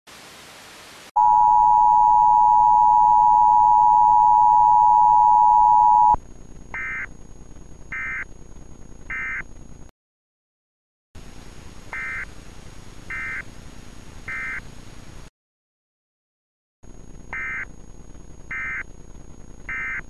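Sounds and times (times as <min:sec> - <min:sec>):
data tone bursts: 0:01.2 - 0:06.2, 0:19.7 - 0:20.0
tv static hiss: 0:11.2 - 0:15.3.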